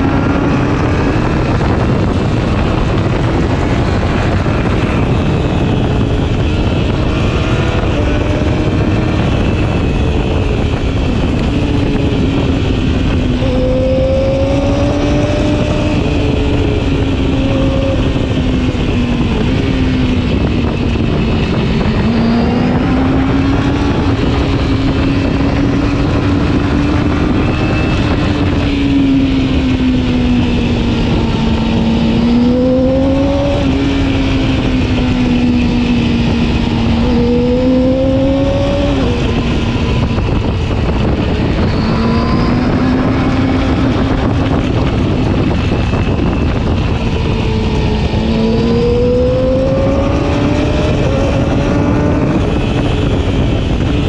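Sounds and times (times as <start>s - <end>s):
motorcycle engine revving: 0.0s - 54.0s
wind rush: 0.0s - 54.0s.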